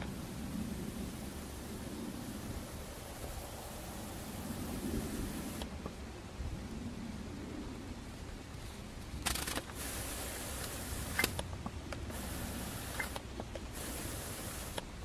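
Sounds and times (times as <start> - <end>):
faint rustling hiss: 0.0 - 15.0.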